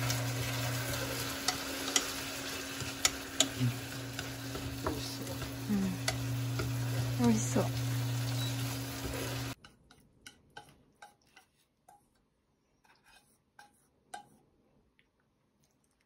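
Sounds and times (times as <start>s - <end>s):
chopsticks clicking and tapping: 0.0s - 7.0s, 9.6s - 12.2s
chicken sizzling in a frying pan: 0.0s - 9.6s.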